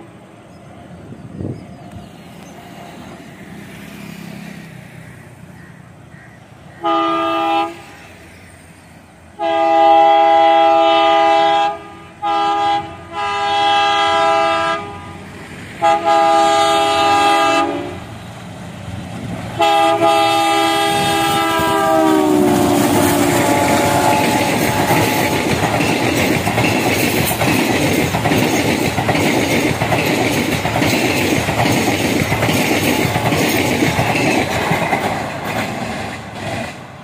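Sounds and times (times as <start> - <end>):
train rumbling on rails: 0.0 - 37.0
locomotive horn blasts: 6.8 - 8.0, 9.4 - 15.2, 15.8 - 18.1, 19.6 - 25.3.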